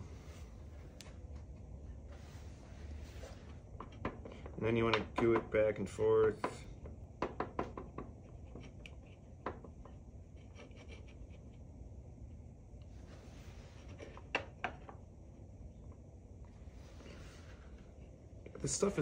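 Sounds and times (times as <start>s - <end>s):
stick scraping glue: 8.2s - 11.6s.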